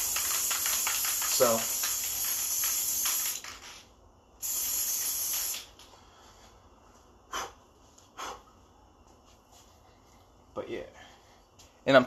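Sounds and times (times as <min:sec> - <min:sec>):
aerosol can spraying: 0:00.0 - 0:03.8, 0:04.4 - 0:05.7.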